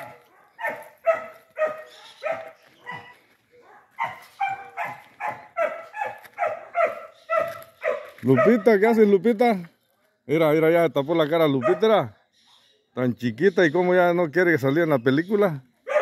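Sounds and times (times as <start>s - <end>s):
dog barking: 0.0s - 8.9s, 11.6s - 12.0s.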